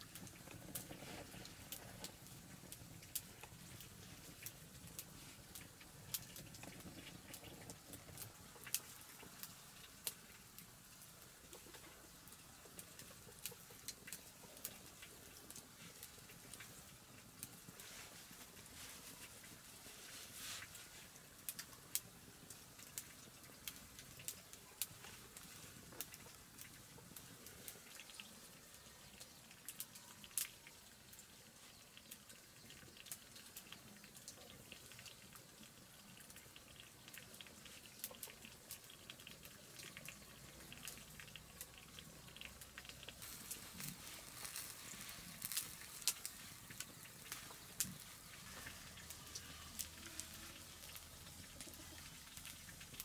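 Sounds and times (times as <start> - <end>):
leaves rustling: 17.5 - 21.5, 43.2 - 53.0.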